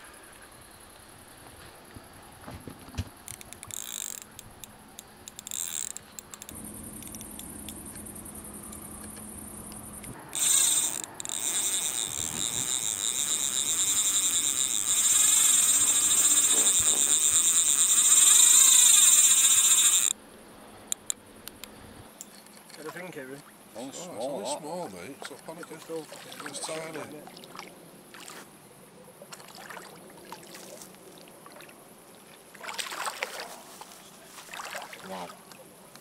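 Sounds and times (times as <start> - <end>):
fishing reel drag buzzing: 3.3 - 20.2.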